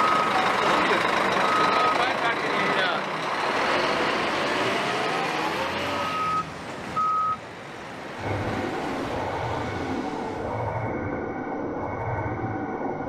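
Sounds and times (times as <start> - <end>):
reversing alarm beeps: 0.0 - 0.4, 1.5 - 2.1, 6.0 - 7.4
diesel truck engine revving: 0.0 - 13.0
low pulsing sound: 8.2 - 13.0.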